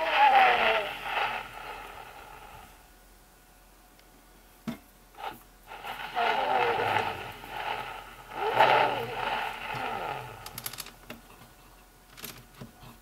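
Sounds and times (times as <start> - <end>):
scratchy phonograph playback: 0.0 - 2.8, 5.2 - 12.8
phonograph clicks: 10.4 - 11.2.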